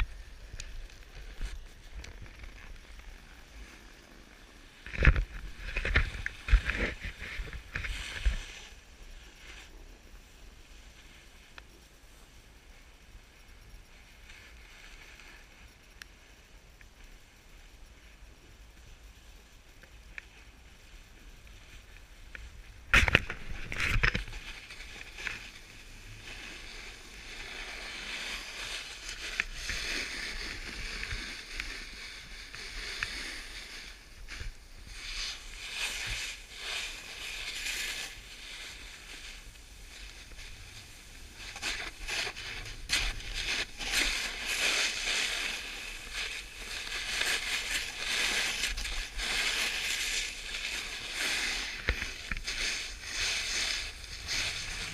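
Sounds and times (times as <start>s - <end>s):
snowboard scraping on snow: 2.6s - 11.3s, 23.0s - 54.9s.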